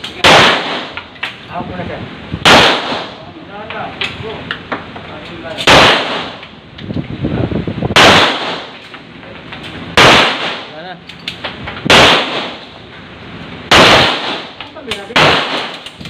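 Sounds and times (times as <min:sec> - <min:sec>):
handgun shots: 0:11.9 - 0:12.6.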